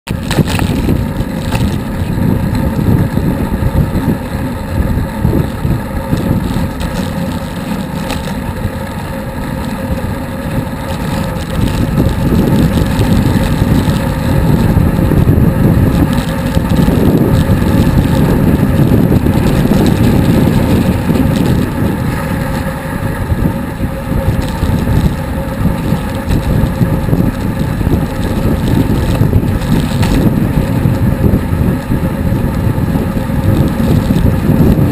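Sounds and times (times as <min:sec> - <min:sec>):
wind buffeting microphone: 0:00.1 - 0:34.9.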